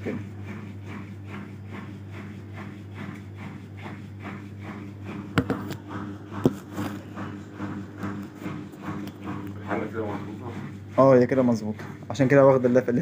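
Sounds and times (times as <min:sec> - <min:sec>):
washing machine motor hum: 0:00.0 - 0:13.0
sharp knocks: 0:05.3 - 0:05.8.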